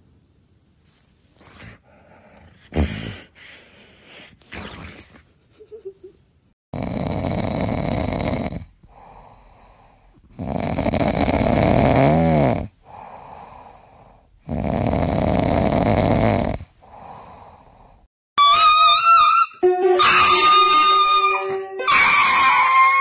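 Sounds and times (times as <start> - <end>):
cat snoring: 6.8 - 18.1.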